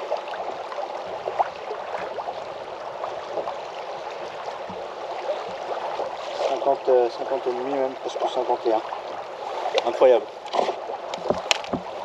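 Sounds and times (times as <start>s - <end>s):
waves lapping against kayak hull: 0.0s - 12.0s
faint knocks and ticks: 4.6s - 5.6s.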